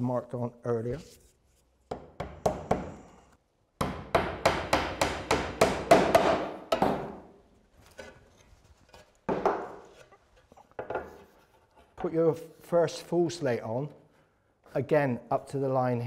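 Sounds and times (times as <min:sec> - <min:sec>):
hammer tapping on roofing slate: 0:03.8 - 0:07.2.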